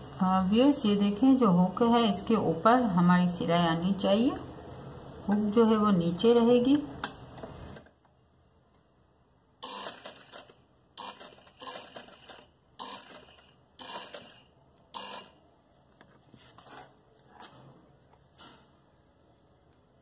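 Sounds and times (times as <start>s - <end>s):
sewing machine stitching: 9.6s - 15.4s.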